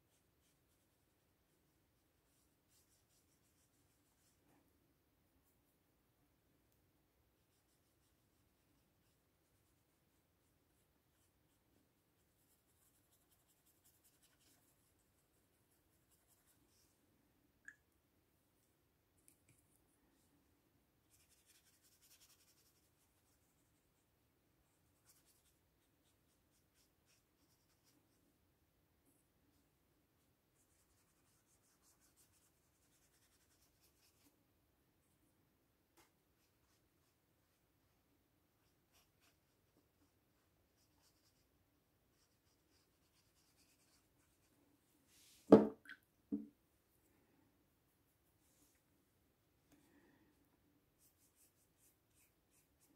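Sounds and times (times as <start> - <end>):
brush scratching on paper: 0.0 - 4.4, 7.4 - 17.0, 21.1 - 24.1, 24.8 - 28.2, 30.6 - 34.3, 38.6 - 41.5, 42.1 - 45.5, 51.0 - 52.9.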